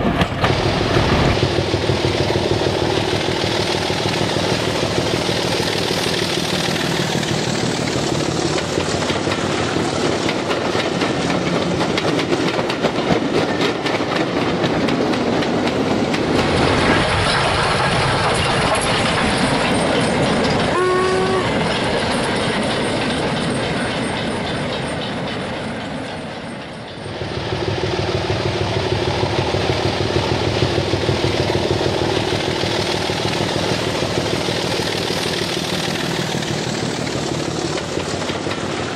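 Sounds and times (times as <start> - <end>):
wheels clattering over rail joints: 0.0 - 38.9
model train motor hum: 20.4 - 21.9, 27.1 - 38.9.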